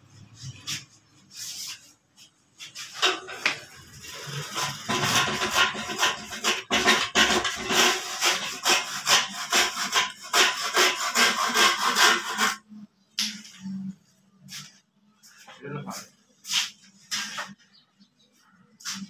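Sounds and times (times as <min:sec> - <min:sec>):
handsaw cutting wood: 0:04.0 - 0:12.7.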